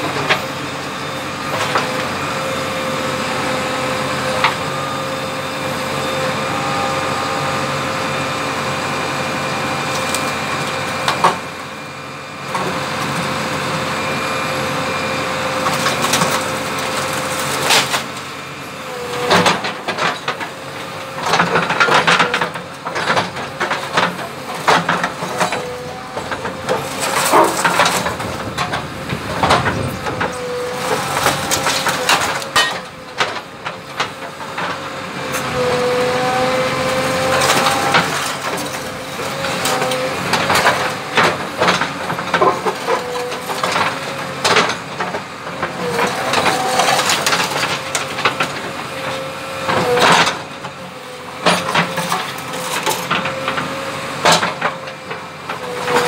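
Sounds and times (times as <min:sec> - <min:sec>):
hydraulic whine: 0:00.0 - 0:45.1
diesel engine under load: 0:00.0 - 0:56.0
bucket clanking and scraping: 0:21.3 - 0:33.4, 0:45.8 - 0:48.7.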